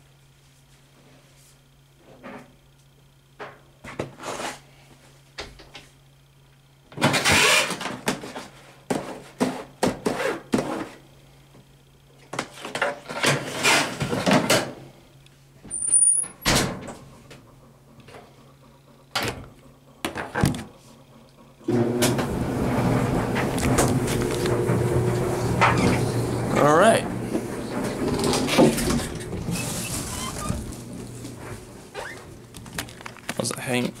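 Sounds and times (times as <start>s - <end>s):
steady low hum: 14.7s - 34.0s.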